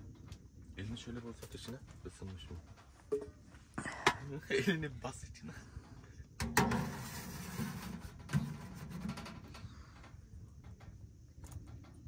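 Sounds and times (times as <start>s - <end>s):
metal scraping and clattering: 6.4s - 9.7s.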